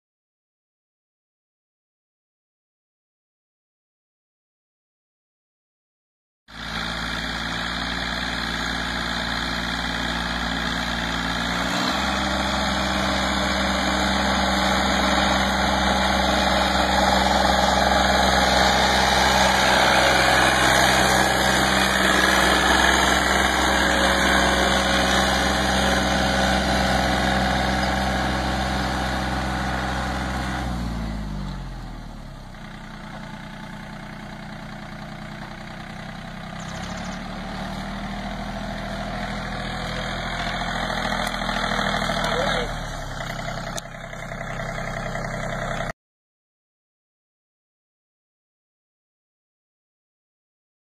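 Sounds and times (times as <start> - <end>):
tiller churning soil: 6.5 - 45.9
tractor diesel engine running: 6.5 - 46.0.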